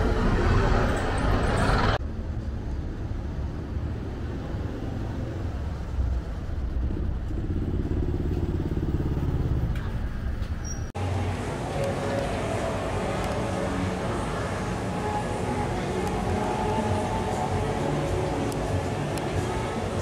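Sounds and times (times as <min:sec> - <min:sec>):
traffic rumble: 0:00.0 - 0:20.0
motor scooter passing: 0:04.2 - 0:10.4.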